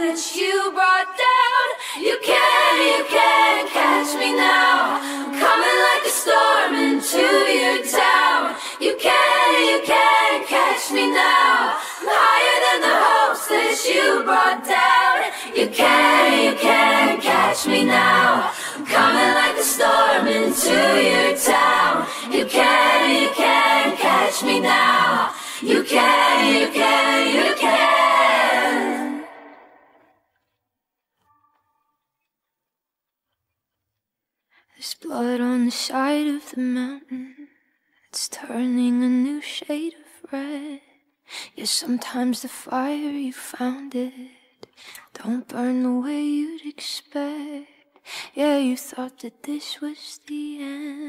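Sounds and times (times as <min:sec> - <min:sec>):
woman singing lead vocal: 0:00.0 - 0:27.7, 0:41.5 - 0:51.0
choir-like harmony vocals: 0:00.0 - 0:30.1.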